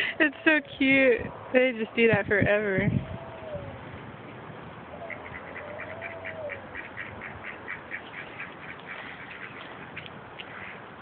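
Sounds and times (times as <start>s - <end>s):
ducks quacking: 4.9s - 10.9s.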